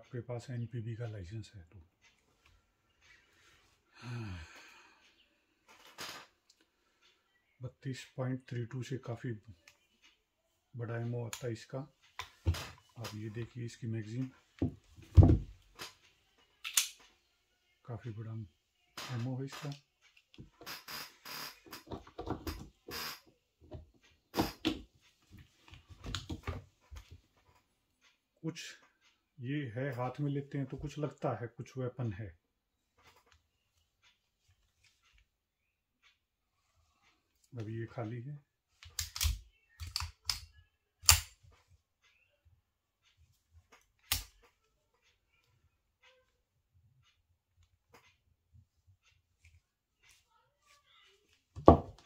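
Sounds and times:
pistol slide clicks and clacks: 16.6 - 17.0, 38.9 - 41.4.

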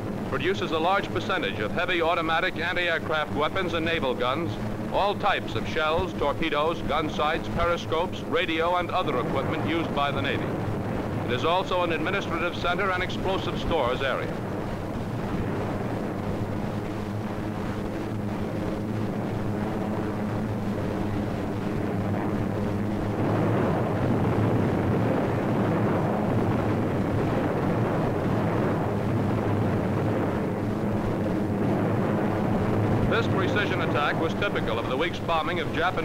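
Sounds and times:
propeller aircraft engines droning: 0.0 - 36.0.

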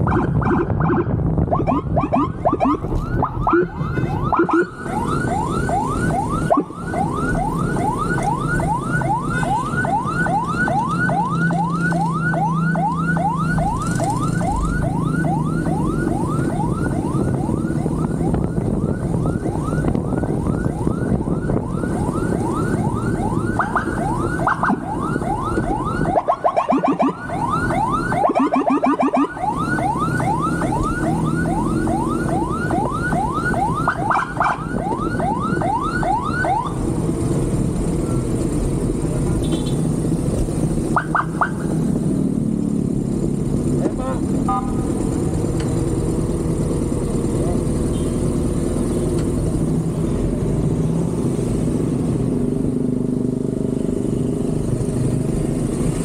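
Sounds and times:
wind rumble: 0.0 - 9.2, 13.2 - 28.5
electronic siren yelping: 0.0 - 36.8, 40.9 - 41.7
motorcycle engine rumble: 0.0 - 56.0.

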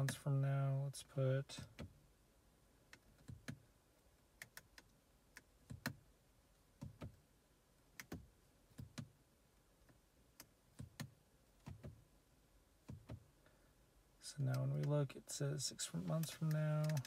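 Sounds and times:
control knob and buttons clicking: 16.1 - 17.0.

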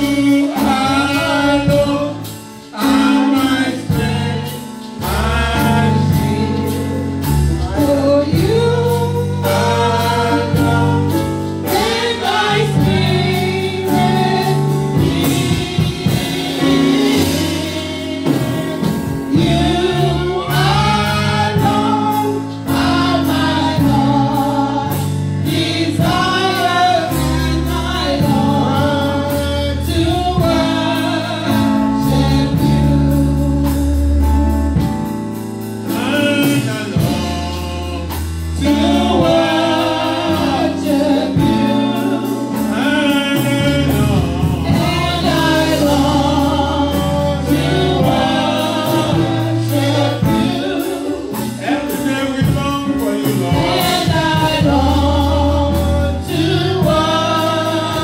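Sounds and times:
women singing: 0.0 - 33.2, 36.1 - 58.0
man singing lead: 0.0 - 35.0, 35.9 - 58.0
held low instrumental chords: 0.0 - 58.0.

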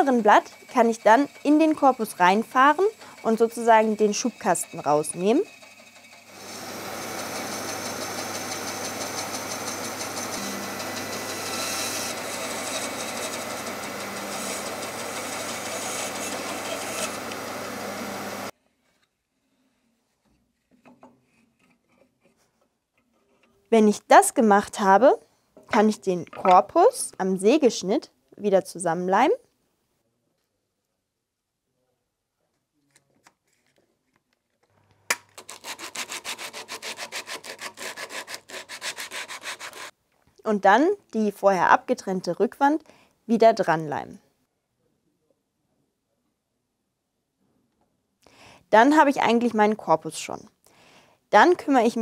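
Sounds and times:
bandsaw cutting wood: 0.0 - 18.5, 35.4 - 39.9
motor hum: 6.0 - 18.5
hand sanding wood on sandpaper: 12.4 - 18.2, 35.5 - 39.9.

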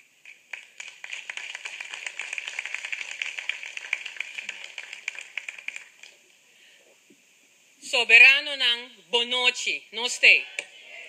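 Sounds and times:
people clapping: 0.0 - 6.2.

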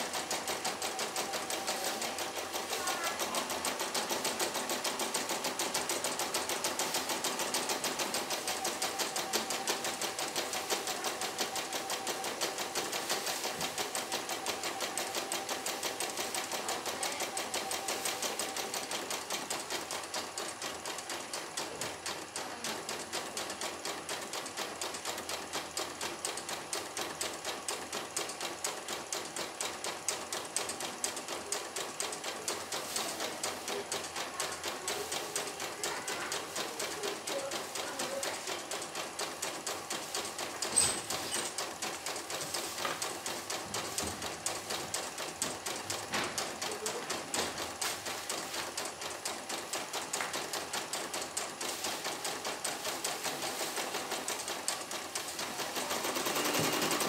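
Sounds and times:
embroidery machine needle clatter: 0.0 - 57.0.

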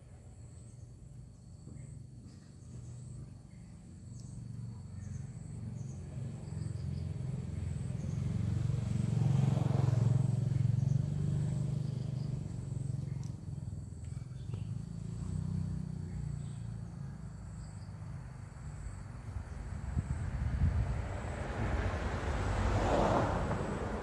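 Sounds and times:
insects chirping: 0.0 - 24.0
motor vehicle passing by: 0.6 - 24.0.

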